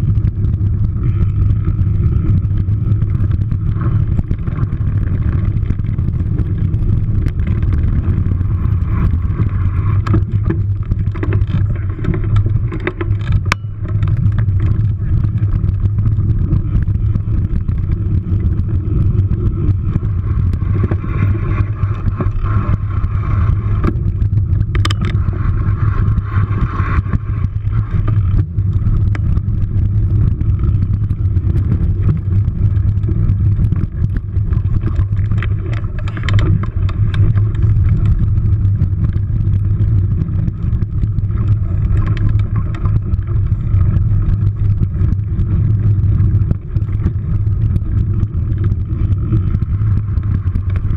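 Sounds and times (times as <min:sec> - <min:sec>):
wind rumble: 0:00.0 - 0:50.9
bike clattering over bumps: 0:00.2 - 0:18.6, 0:19.2 - 0:29.5.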